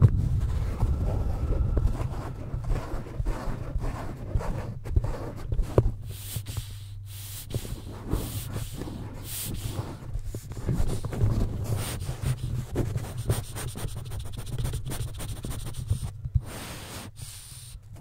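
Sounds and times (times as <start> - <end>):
microphone handling crackle: 0.0 - 6.6
blower bulb air puffs: 5.7 - 13.8, 15.7 - 18.0.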